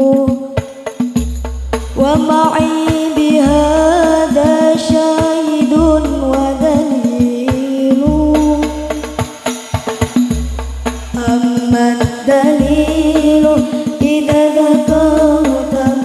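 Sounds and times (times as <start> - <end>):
woman singing into a microphone: 0.0 - 1.0, 1.9 - 9.4, 11.1 - 16.0
percussion strikes: 0.0 - 16.0
low drum thuds: 0.6 - 16.0.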